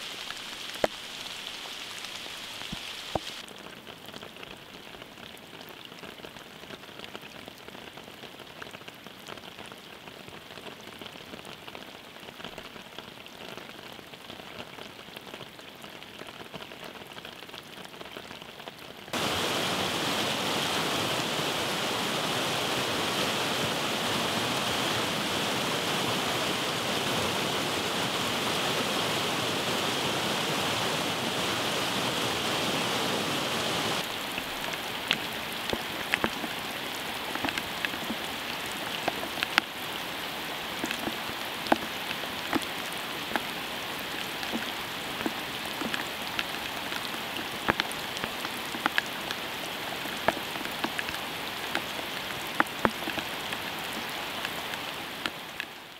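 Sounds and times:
loud rush of water: 0.0s - 3.5s, 19.1s - 55.9s
rain pattering on leaves: 0.0s - 55.9s.

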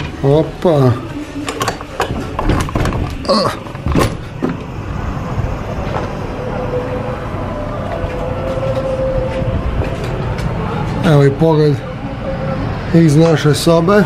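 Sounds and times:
distant city traffic hum: 0.0s - 14.0s.

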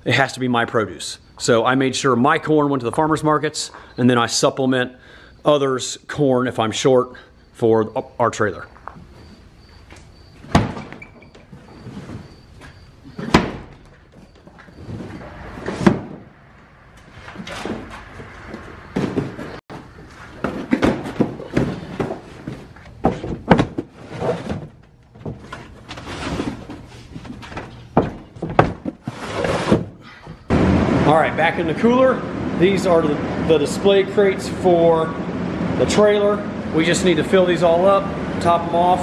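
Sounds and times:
boxes thudding on wooden boards: 10.3s - 11.0s, 11.7s - 16.3s, 18.6s - 25.8s, 26.6s - 30.5s.

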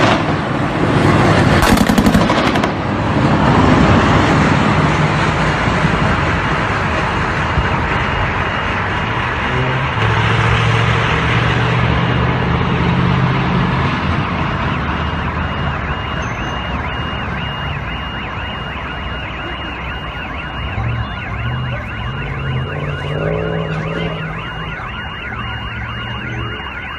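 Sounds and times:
vehicle engine drone: 0.0s - 26.9s
electronic alarm siren wailing: 10.9s - 26.9s.

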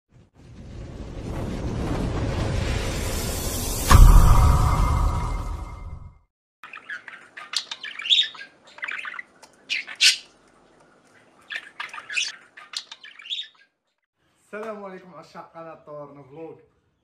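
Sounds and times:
budgerigar chirping and squawking: 6.6s - 10.3s, 11.2s - 13.8s.

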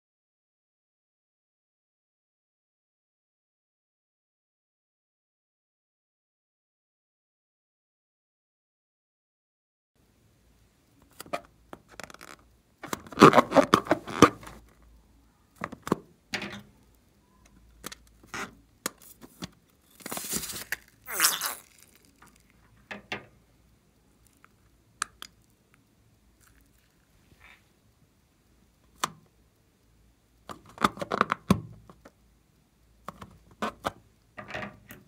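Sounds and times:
hands peeling balloon: 11.1s - 14.6s, 17.8s - 22.6s.

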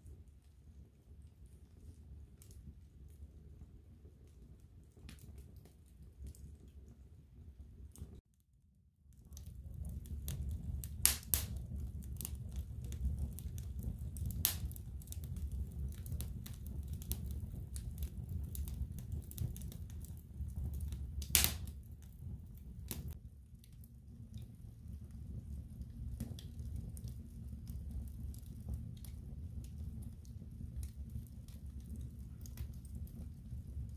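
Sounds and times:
fire flame rumbling: 0.0s - 8.2s, 9.1s - 33.9s
burning wood crackling and popping: 9.2s - 33.9s.

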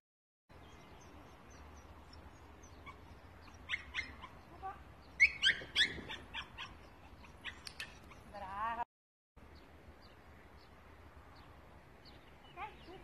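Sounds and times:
young dog yipping: 2.7s - 8.4s.

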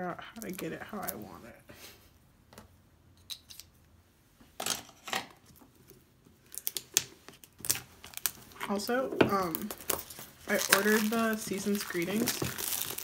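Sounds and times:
shrink wrap scratchy scrapes: 9.6s - 13.0s.

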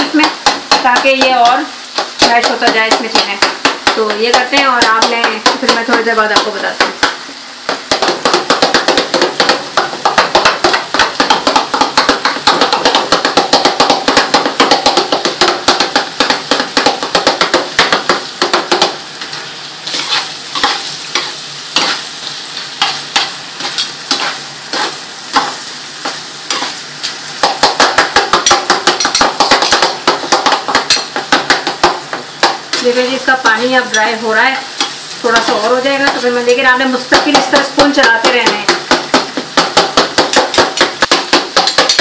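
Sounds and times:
meat sizzling: 0.0s - 42.0s
spoon scraping a pan: 17.0s - 36.6s.

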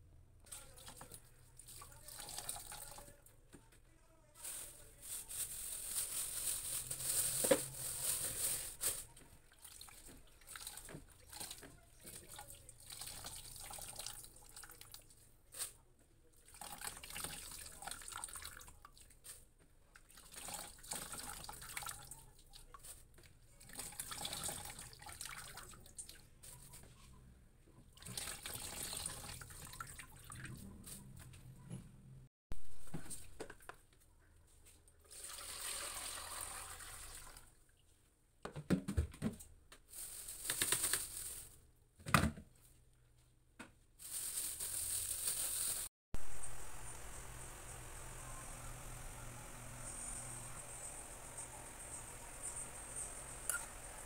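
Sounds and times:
liquid trickling into plastic basin: 23.6s - 25.9s.

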